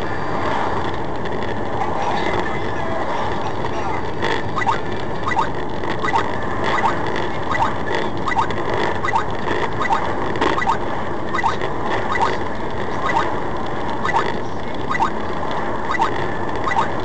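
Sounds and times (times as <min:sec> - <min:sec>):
road and engine noise in cab: 0:00.0 - 0:17.0
high-pitched squeaks: 0:04.4 - 0:12.4, 0:13.0 - 0:13.3, 0:14.0 - 0:14.3, 0:14.9 - 0:15.2, 0:15.9 - 0:17.0.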